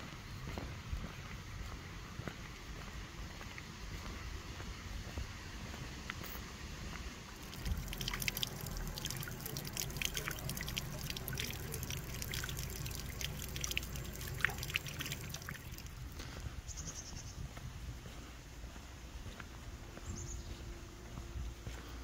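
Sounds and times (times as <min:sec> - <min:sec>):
steady low rumble: 0:00.0 - 0:22.0
water trickling and dripping: 0:06.1 - 0:16.4.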